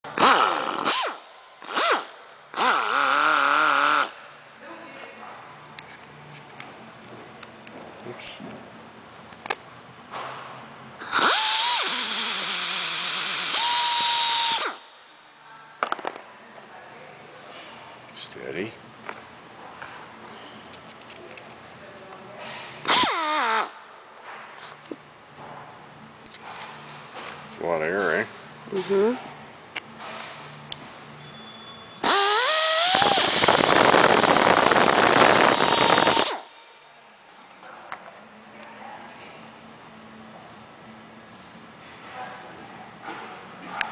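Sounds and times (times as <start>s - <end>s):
pneumatic rivet tool running: 0.1s - 4.2s, 11.0s - 15.0s, 22.8s - 23.8s, 32.0s - 36.6s.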